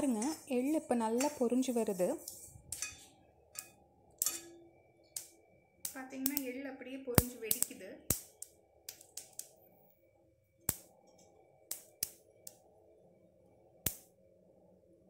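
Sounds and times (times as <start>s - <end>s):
sesame seeds popping in pan: 0.0s - 9.7s, 10.6s - 12.7s, 13.8s - 14.1s.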